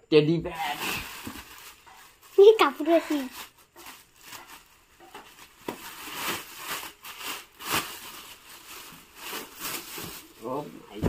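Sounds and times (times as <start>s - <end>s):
plastic packaging crinkling: 0.6s - 10.7s.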